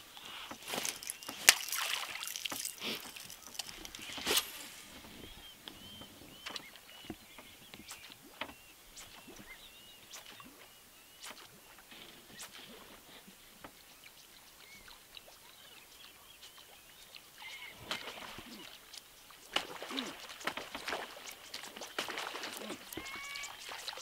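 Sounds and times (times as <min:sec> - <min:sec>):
fishing rod cast crack: 0:00.6 - 0:04.9
lure splashing into water: 0:00.6 - 0:05.0, 0:17.4 - 0:24.0
small animals chirping: 0:14.1 - 0:20.5, 0:21.1 - 0:24.0.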